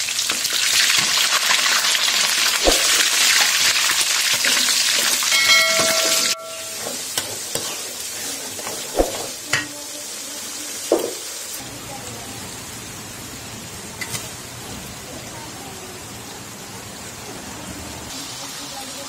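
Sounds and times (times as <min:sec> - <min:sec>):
oil frying in a pan: 0:00.0 - 0:19.0
metal spoon clinking on pan: 0:04.4 - 0:07.8.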